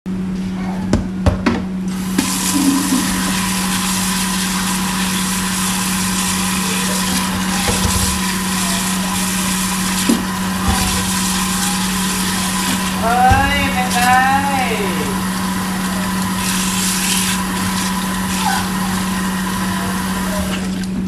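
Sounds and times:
tap water splashing into basin: 0:02.0 - 0:21.0.

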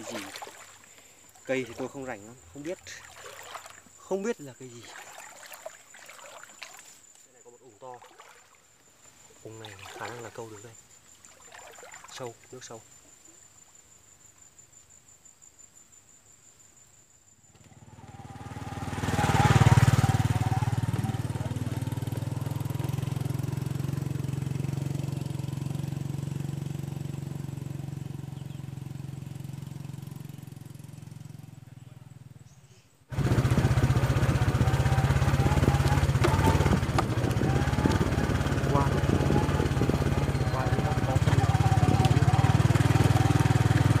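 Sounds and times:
high insect buzz: 0:00.0 - 0:25.9
small motorbike engine: 0:17.5 - 0:32.5, 0:33.1 - 0:44.0
sharp knocks: 0:36.2 - 0:37.2.

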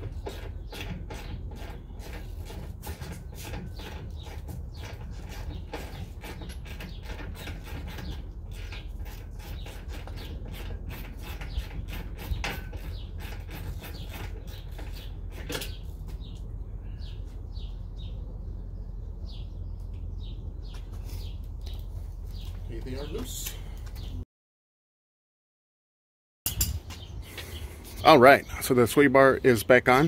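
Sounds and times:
small birds chirping: 0:00.0 - 0:24.2, 0:26.5 - 0:30.0
steady low rumble: 0:11.7 - 0:24.2.

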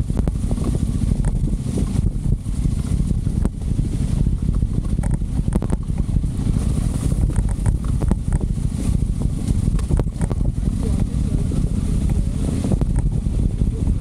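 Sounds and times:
motorcycle low rumble: 0:00.0 - 0:14.0
wind buffeting microphone: 0:00.0 - 0:14.0.

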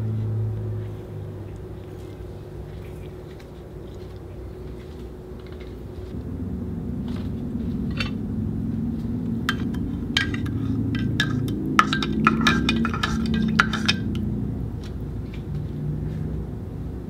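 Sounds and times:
low drone: 0:00.0 - 0:17.0
spoon clinking in ceramic mug: 0:09.5 - 0:14.2.

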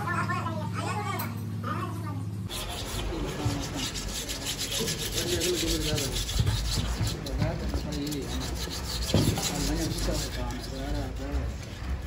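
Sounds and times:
sandpaper rasping on metal: 0:02.5 - 0:12.0.

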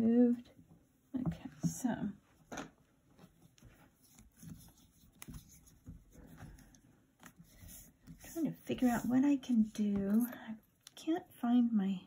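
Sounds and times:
hands rubbing clay: 0:03.2 - 0:09.7.

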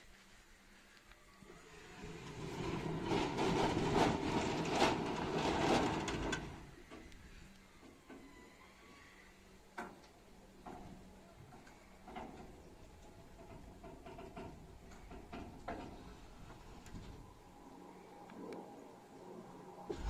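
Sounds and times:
sliding gate motor humming: 0:01.4 - 0:08.7
light clicks and knocks of gate: 0:09.7 - 0:17.2.

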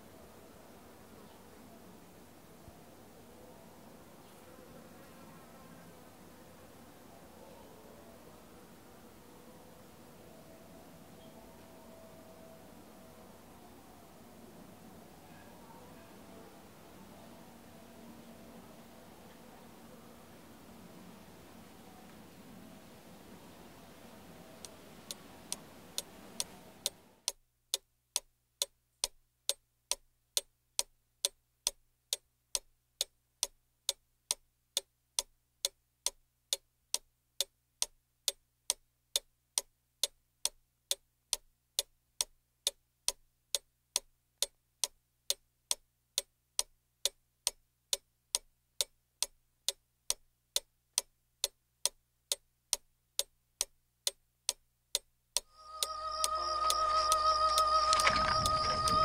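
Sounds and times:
faint background hiss: 0:00.0 - 0:59.0
clock ticking: 0:24.6 - 0:59.0.

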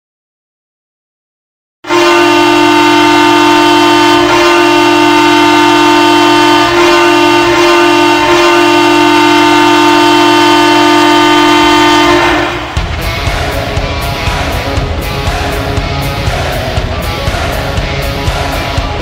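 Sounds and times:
hockey goal horn blast: 0:01.8 - 0:12.8.

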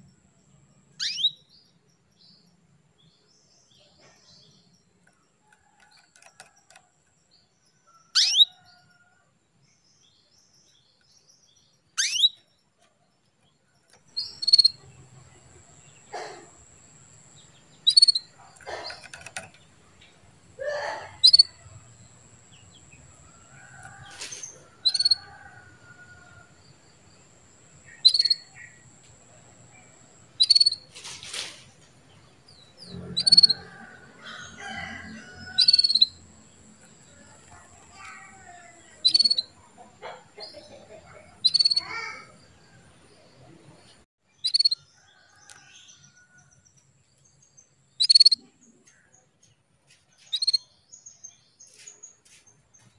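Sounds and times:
canary chirping: 0:00.9 - 0:02.5, 0:03.1 - 0:09.1, 0:10.7 - 0:26.3, 0:27.8 - 0:29.0, 0:30.2 - 0:31.2, 0:32.4 - 0:42.5, 0:44.4 - 0:46.4, 0:47.7 - 0:48.6, 0:50.2 - 0:52.9.

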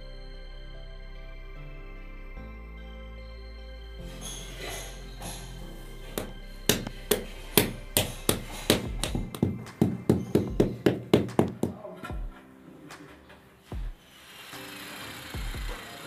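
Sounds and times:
background music: 0:00.0 - 0:16.0
rubber mallet tapping tile: 0:06.2 - 0:11.8.

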